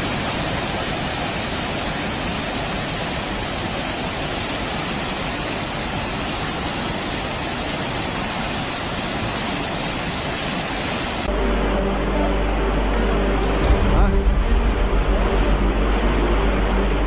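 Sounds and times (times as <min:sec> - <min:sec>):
floodwater rushing down street: 0:00.0 - 0:17.0.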